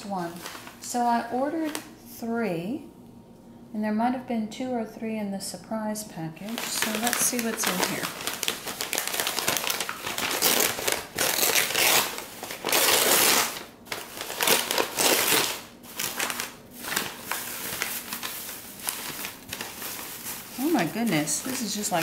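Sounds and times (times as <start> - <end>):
newspaper crumpling and tearing: 0.0 - 1.9, 6.4 - 22.0
shredded paper rustling: 0.0 - 1.9, 6.4 - 22.0.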